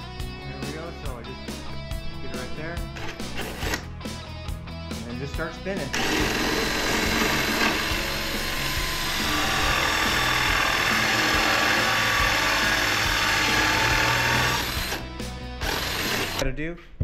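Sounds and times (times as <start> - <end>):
power drill driving a screw: 3.0 - 3.9, 5.9 - 15.0, 15.6 - 16.4.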